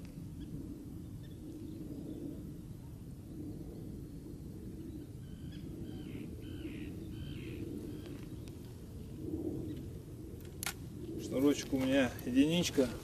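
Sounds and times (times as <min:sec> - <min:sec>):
low outdoor rumble: 0:00.0 - 0:13.0
bird harsh calls: 0:05.2 - 0:08.4.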